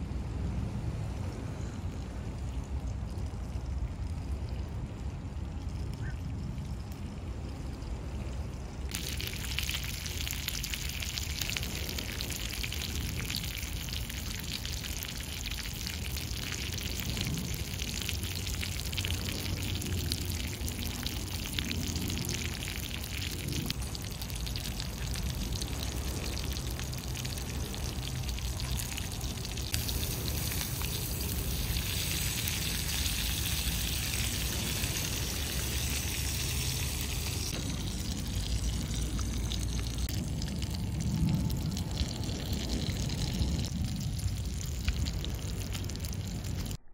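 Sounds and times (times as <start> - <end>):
low rumble: 16.3 - 46.9
food sizzling on griddle: 29.4 - 40.1.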